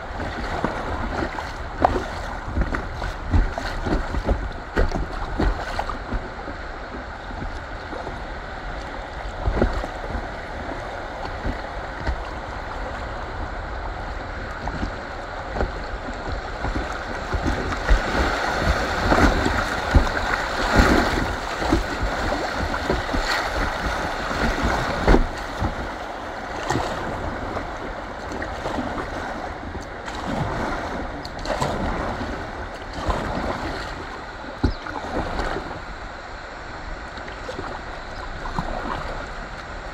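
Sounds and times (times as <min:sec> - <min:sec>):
river water rushing and splashing: 0:00.0 - 0:39.9
low thumps on microphone: 0:14.6 - 0:25.9, 0:34.6 - 0:35.5.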